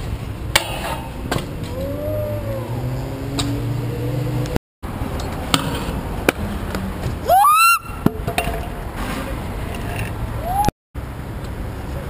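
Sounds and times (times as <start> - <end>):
short rising squeal: 10.4 - 10.7.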